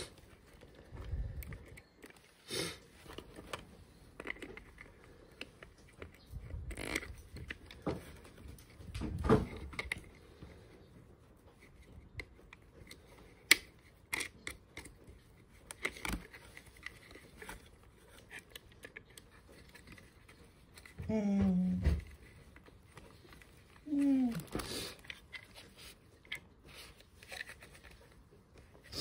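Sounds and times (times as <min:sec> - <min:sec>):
cardboard packaging rustling: 0:11.0 - 0:29.0.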